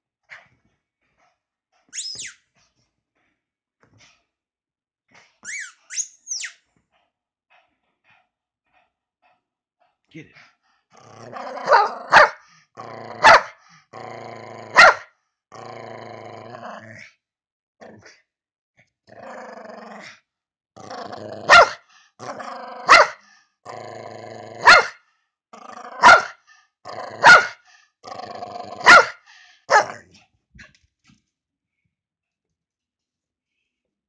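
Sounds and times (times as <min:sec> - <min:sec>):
dog play-growling: 0:10.9 - 0:12.1
dog barking: 0:11.6 - 0:12.4, 0:13.2 - 0:13.6, 0:14.8 - 0:15.1, 0:21.5 - 0:21.8, 0:22.8 - 0:23.2, 0:24.6 - 0:25.0, 0:26.0 - 0:26.4, 0:27.2 - 0:27.6, 0:28.8 - 0:30.0.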